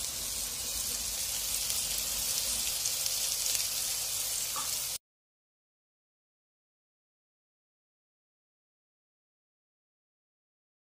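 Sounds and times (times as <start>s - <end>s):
tofu sizzling in oil: 0.0s - 5.0s.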